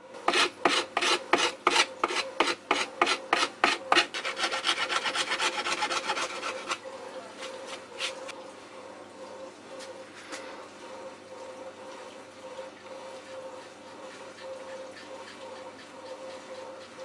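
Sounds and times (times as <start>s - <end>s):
hand file rasping on board edge: 0.3s - 6.8s.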